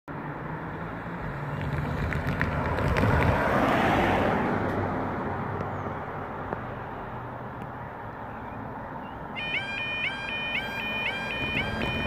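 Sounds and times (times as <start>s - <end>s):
car passing by: 0.1s - 9.0s.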